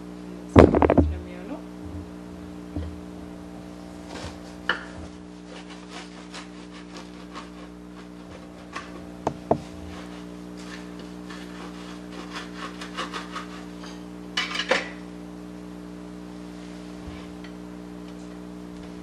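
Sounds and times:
steady low hum: 0.0s - 19.0s
sharp knocks: 0.6s - 1.2s
knife sawing through crusty bread: 4.1s - 14.0s.

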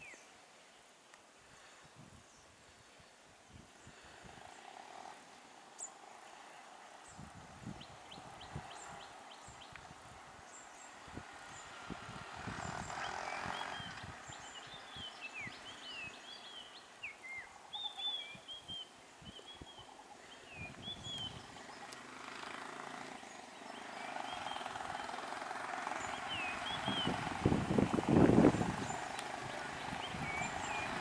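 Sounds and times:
birds chirping: 2.2s - 31.0s
small engine running: 11.0s - 14.2s, 21.2s - 31.0s.

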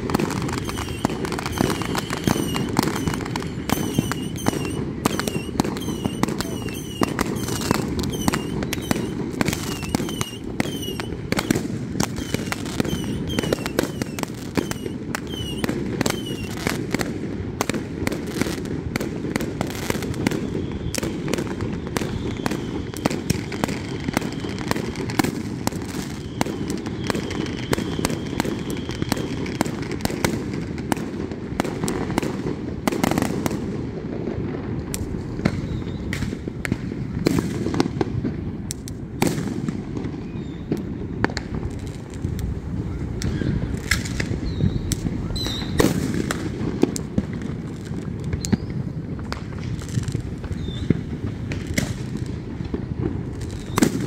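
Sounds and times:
falling firework whistles: 0.0s - 17.0s, 19.6s - 30.3s, 35.3s - 36.5s, 39.2s - 46.9s, 48.2s - 54.0s
distant firework bursts rumbling: 0.0s - 54.0s
firecrackers crackling: 0.0s - 54.0s.

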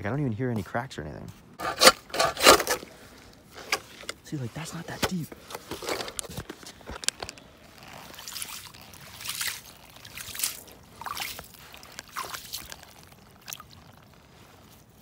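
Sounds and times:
hand splashing in slushy water: 7.8s - 15.0s.

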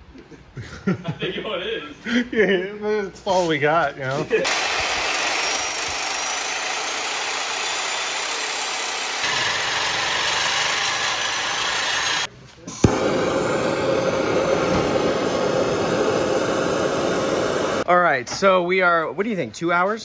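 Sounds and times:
angle grinder running: 4.4s - 17.9s
torch flame hissing: 4.4s - 17.9s.

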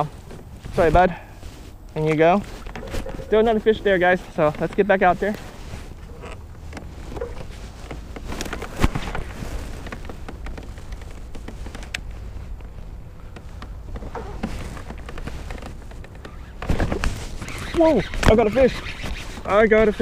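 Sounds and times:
rumble of wind and water: 0.0s - 20.0s.

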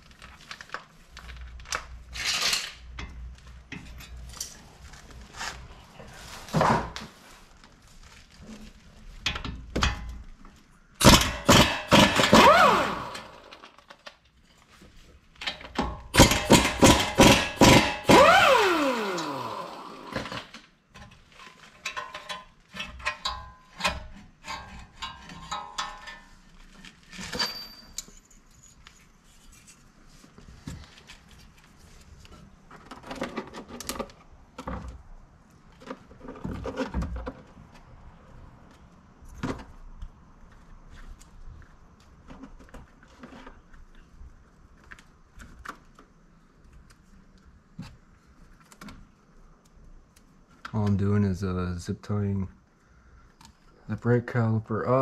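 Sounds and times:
impact wrench running: 11.0s - 13.6s, 16.2s - 20.5s
metal clinks and knocks: 21.8s - 29.0s.

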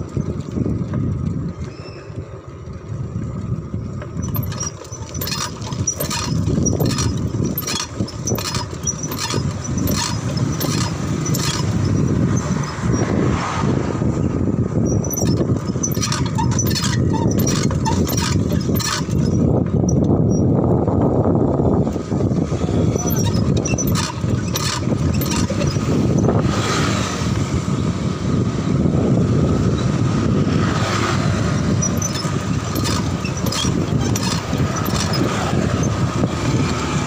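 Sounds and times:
bicycle clicks and rattles: 0.0s - 13.4s, 14.5s - 20.8s, 22.9s - 27.0s, 30.5s - 37.0s
bicycle road rumble: 0.0s - 37.0s
wind on microphone: 0.0s - 37.0s
car passing: 12.6s - 14.6s.

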